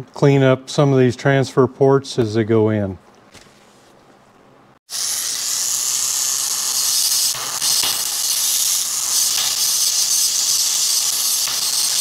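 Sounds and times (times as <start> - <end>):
rotary grinder high hiss: 4.9 - 12.0.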